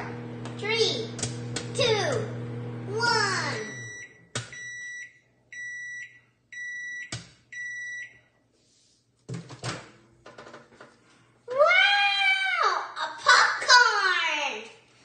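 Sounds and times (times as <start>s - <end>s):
microwave oven beeping: 1.1s - 8.3s.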